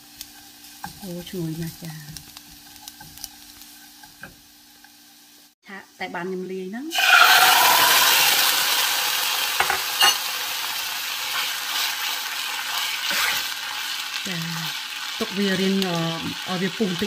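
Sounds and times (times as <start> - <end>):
sauce sizzling in a saucepan: 0.0 - 17.0
wooden spoon stirring: 0.1 - 5.0.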